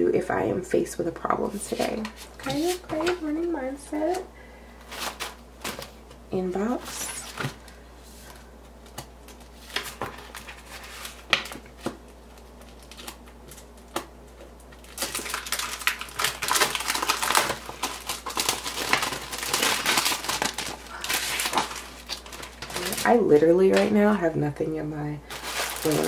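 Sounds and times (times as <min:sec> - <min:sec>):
paper crinkling and rustling: 0:01.5 - 0:04.2, 0:04.8 - 0:24.0, 0:25.3 - 0:26.0.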